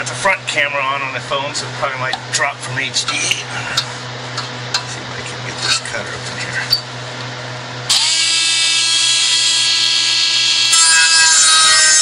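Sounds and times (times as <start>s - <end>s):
power tool cutting steel: 7.9s - 12.0s.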